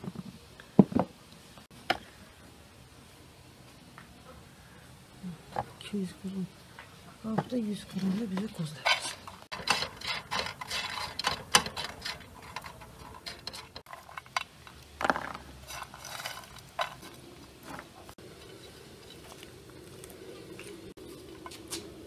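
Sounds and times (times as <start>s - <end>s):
nuts rattling in a frying pan: 7.7s - 19.3s.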